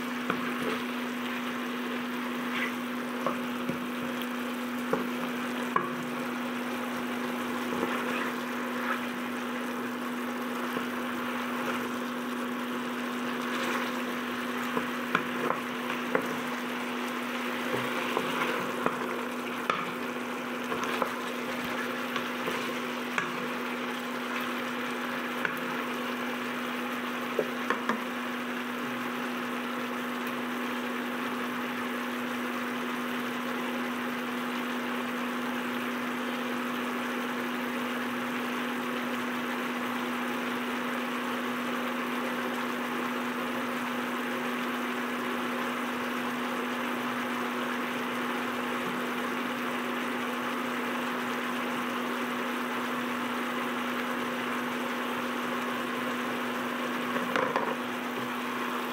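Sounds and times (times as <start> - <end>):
steady hum: 0.0 - 30.8
food sizzling in a wok: 0.0 - 58.9
wooden spatula scraping a pan: 0.2 - 4.1, 7.4 - 9.3, 17.4 - 24.6.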